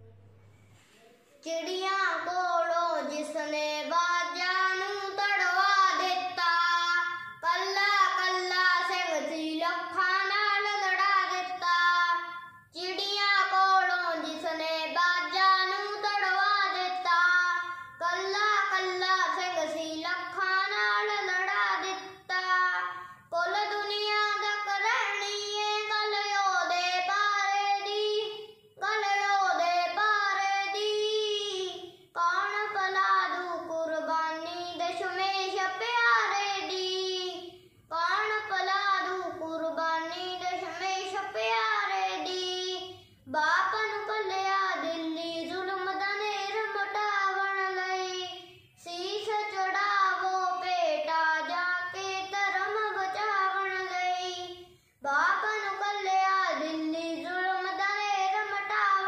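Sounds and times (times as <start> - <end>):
boy singing unaccompanied: 1.3 - 59.0.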